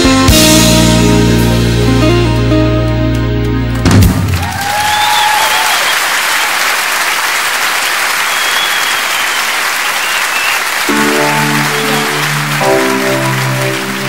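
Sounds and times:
instrumental chords: 0:00.0 - 0:03.9, 0:10.9 - 0:14.0
audience applauding: 0:04.0 - 0:14.0
shrill whistles: 0:04.6 - 0:06.7, 0:07.8 - 0:13.4.

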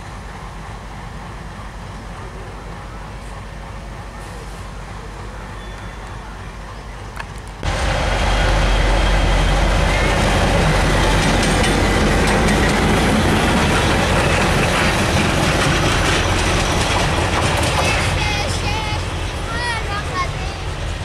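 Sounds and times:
diesel locomotive engine drone: 0:00.0 - 0:21.0
wheels clicking on rails: 0:09.0 - 0:21.0.

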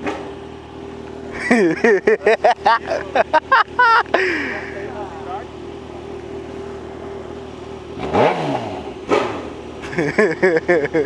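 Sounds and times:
motorcycle engine idling: 0:00.0 - 0:11.0
motorcycle throttle blips: 0:05.5 - 0:10.0.

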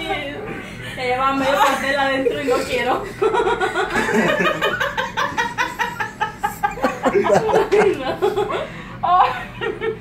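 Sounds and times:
people laughing hard: 0:02.3 - 0:10.0.

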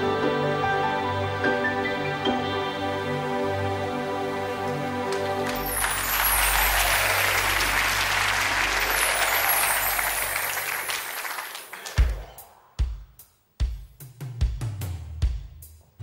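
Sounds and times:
audience applauding: 0:04.7 - 0:12.5.

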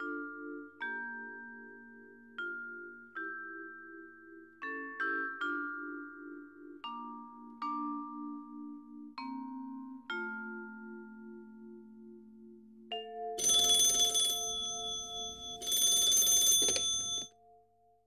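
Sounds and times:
vibraphone-like mallet notes: 0:00.0 - 0:15.7
loud alarm bell ringing: 0:13.4 - 0:17.3.

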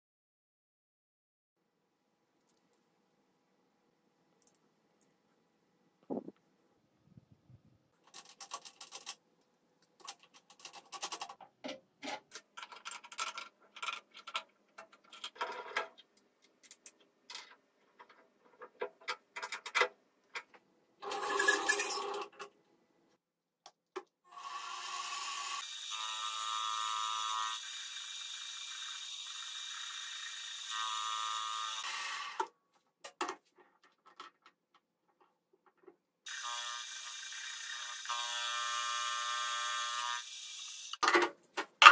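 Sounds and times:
metal tooling clinking: 0:21.0 - 0:22.4.

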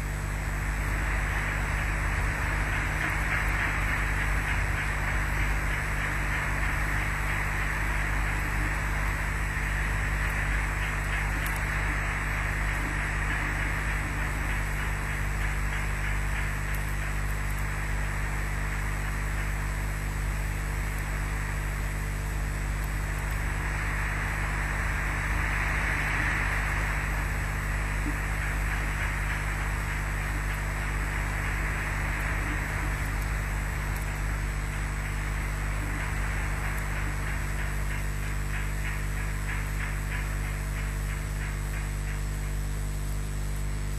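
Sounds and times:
low electrical hum: 0:00.0 - 0:43.9
steady hiss: 0:00.0 - 0:43.9.

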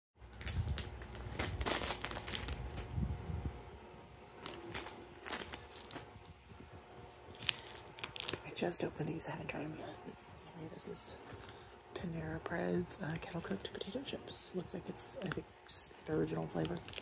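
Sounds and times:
chip bag crinkling: 0:00.2 - 0:03.0, 0:04.4 - 0:06.2, 0:07.3 - 0:08.6, 0:15.1 - 0:17.0.

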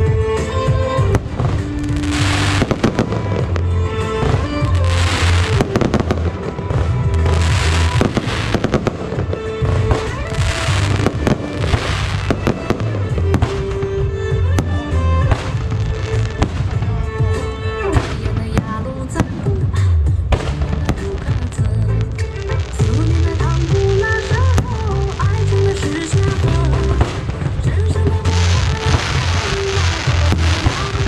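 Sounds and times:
loud music with bass beat: 0:00.0 - 0:18.6, 0:19.7 - 0:31.0
fireworks crackling: 0:00.0 - 0:31.0
firework shells bursting: 0:00.4 - 0:19.3, 0:20.3 - 0:31.0.

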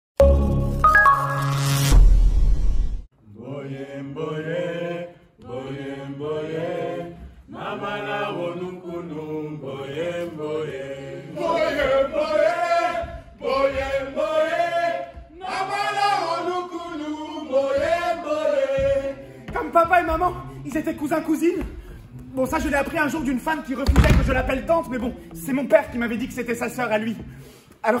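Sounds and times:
voices chanting: 0:03.4 - 0:23.7.

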